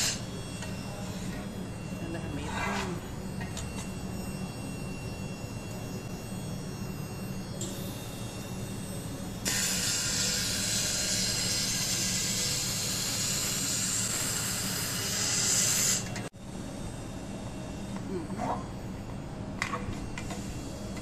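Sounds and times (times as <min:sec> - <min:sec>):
laser welder hissing: 0:00.0 - 0:00.3, 0:09.4 - 0:16.2
steady low hum: 0:00.0 - 0:21.0.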